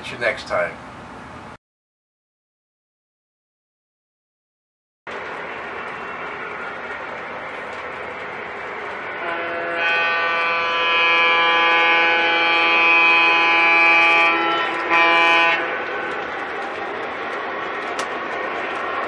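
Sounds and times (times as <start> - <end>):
model train rolling on track: 5.1 - 19.0
model train horn: 9.2 - 16.2.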